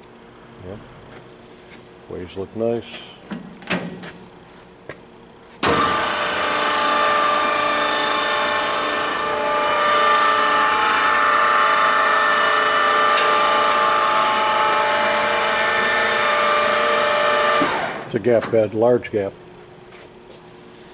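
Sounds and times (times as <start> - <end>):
lathe gear whine: 5.6 - 18.1.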